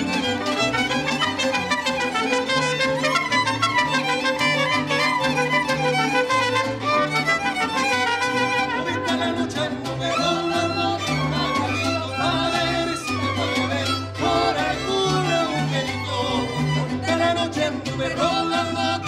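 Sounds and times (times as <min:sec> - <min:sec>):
bowed violins melody: 0:00.0 - 0:09.4
guitars strumming: 0:00.0 - 0:19.0.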